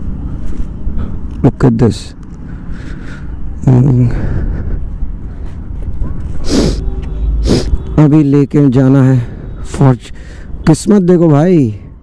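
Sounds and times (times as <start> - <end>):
sharp breath-like bursts: 2.4 - 3.5, 6.4 - 7.8, 10.1 - 10.6
man murmuring: 3.6 - 4.9.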